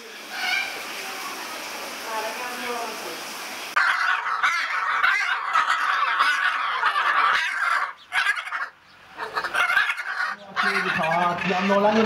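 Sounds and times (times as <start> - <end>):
macaws raspy chatter: 3.8 - 12.0.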